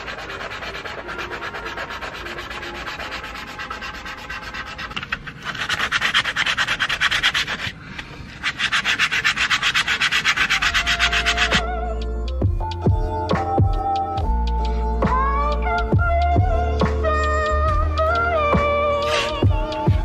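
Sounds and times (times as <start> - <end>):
sandpaper rubbing by hand: 0.0 - 12.0, 17.5 - 20.0.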